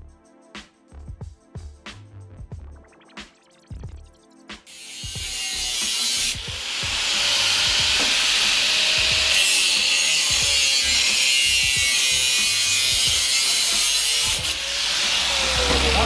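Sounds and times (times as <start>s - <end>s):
angle grinder cutting metal: 4.7s - 16.0s.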